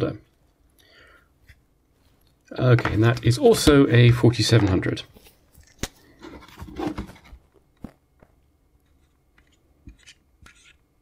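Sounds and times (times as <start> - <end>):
rustling handling noise: 2.0 - 10.8.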